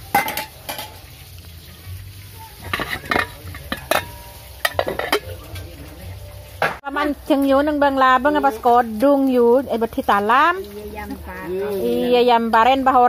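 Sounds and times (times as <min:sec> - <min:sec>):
ladle and pot clinking: 0:00.0 - 0:01.3, 0:02.6 - 0:06.8.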